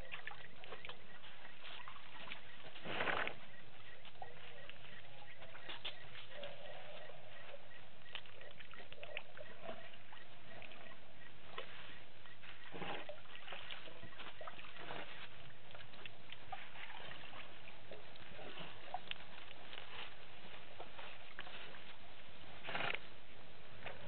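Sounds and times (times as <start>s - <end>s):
elephants drinking water: 0.0s - 24.0s
water sloshing and dripping: 11.5s - 21.9s
small splashes and clicks: 13.0s - 20.2s.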